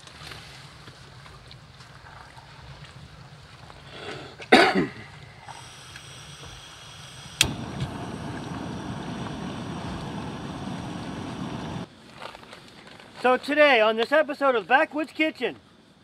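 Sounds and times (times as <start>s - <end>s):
person coughing: 4.5s - 5.1s.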